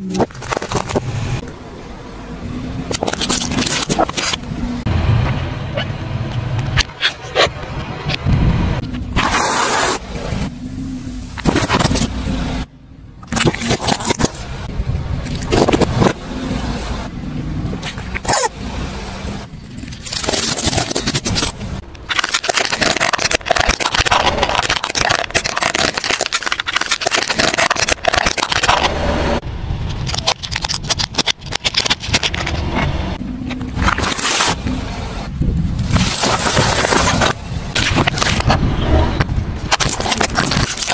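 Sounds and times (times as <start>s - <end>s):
plastic cracking and snapping: 20.0s - 28.9s, 39.7s - 40.9s.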